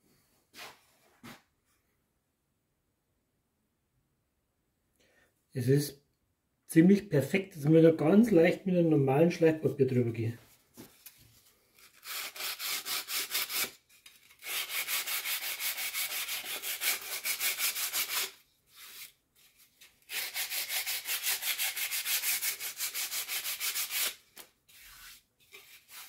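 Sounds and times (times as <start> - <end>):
sandpaper rubbing on wood: 11.9 - 13.8, 14.4 - 19.2, 20.0 - 26.0.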